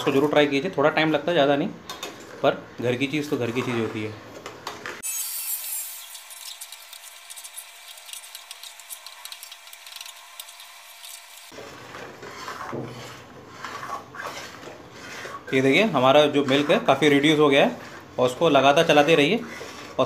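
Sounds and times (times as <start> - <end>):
metal spatula scraping metal pan: 2.2 - 4.2, 8.1 - 20.0.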